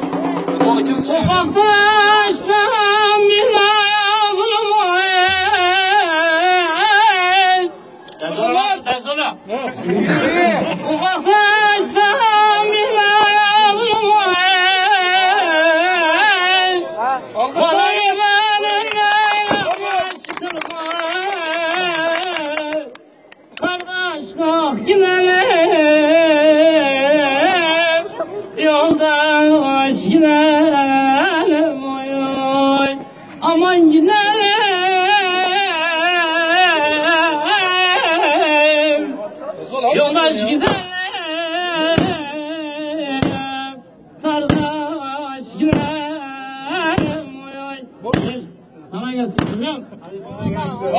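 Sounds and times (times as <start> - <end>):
man singing unaccompanied: 0.0 - 7.9, 10.2 - 23.0, 23.6 - 49.8
man singing folk song: 40.0 - 49.6.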